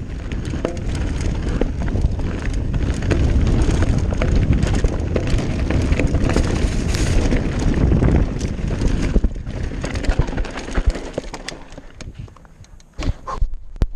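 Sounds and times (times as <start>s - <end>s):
wind rushing over microphone: 0.0s - 10.9s
tyres crunching on gravel: 0.0s - 12.2s
bike knocking and rattling: 0.0s - 13.9s.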